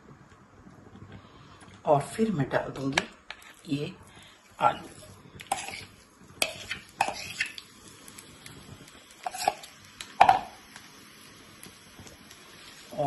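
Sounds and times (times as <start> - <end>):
utensil knocking against frying pan: 10.2 - 10.6.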